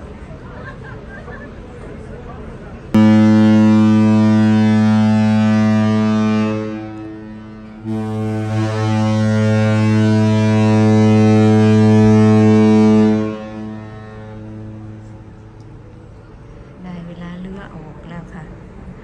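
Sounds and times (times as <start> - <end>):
ship horn blasts: 2.9 - 16.7.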